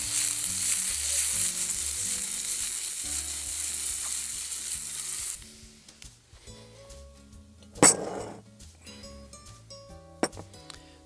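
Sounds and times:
potatoes sizzling in a pan: 0:00.0 - 0:05.7.

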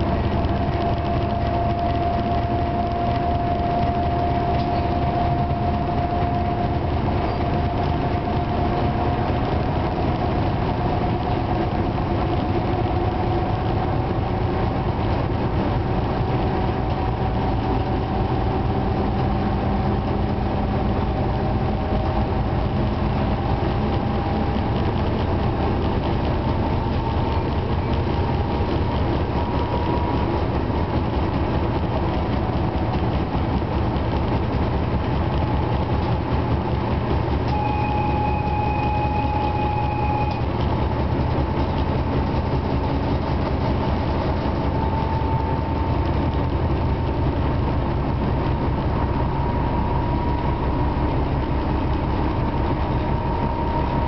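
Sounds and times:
diesel locomotive engine: 0:00.0 - 0:54.0
train rumbling on rails: 0:00.0 - 0:54.0
thin steady tone: 0:37.5 - 0:40.6.

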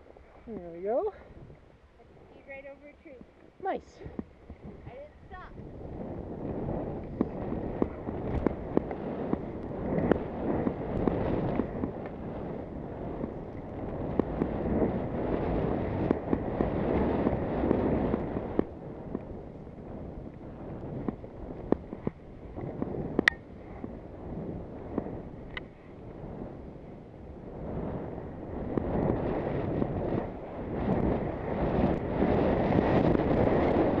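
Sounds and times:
wind buffeting microphone: 0:00.0 - 0:34.0
skis scraping over snow: 0:06.2 - 0:26.5.

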